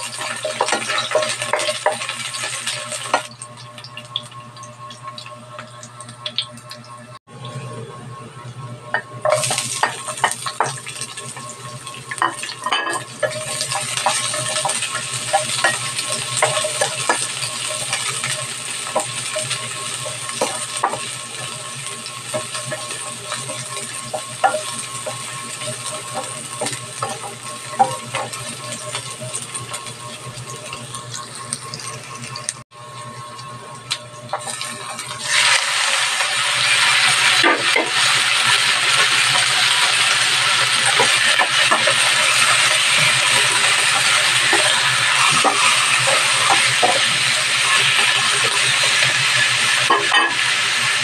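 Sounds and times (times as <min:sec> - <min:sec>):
spatula scraping and tapping pan: 0:00.0 - 0:03.3, 0:09.0 - 0:32.0, 0:40.6 - 0:49.2, 0:49.8 - 0:50.4
onion sizzling in hot oil: 0:00.0 - 0:06.8, 0:08.9 - 0:51.0.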